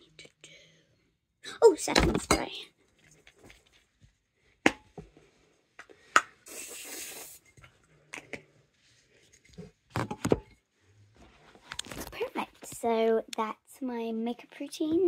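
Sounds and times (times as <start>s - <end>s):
spray hissing: 6.4s - 7.4s.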